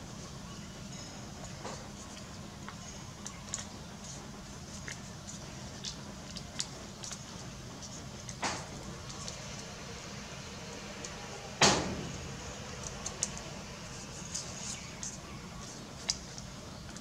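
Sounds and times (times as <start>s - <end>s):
low hum: 6.4s - 17.0s
paper being folded: 12.8s - 16.4s.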